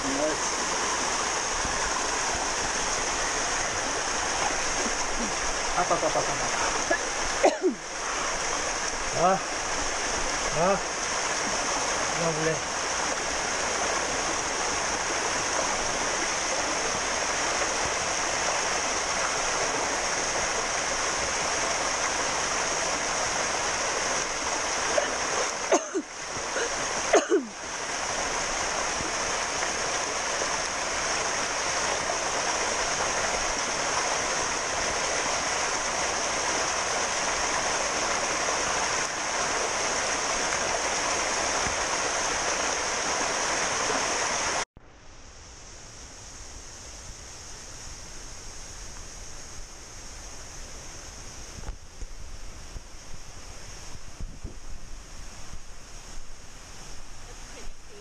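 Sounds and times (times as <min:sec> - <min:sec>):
waterfall rushing into pool: 0:00.0 - 0:44.7.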